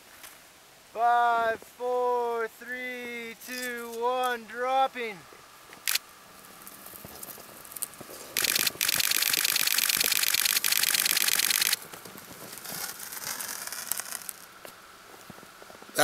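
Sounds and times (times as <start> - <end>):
camera shutter burst: 5.8 - 6.1, 8.4 - 11.8.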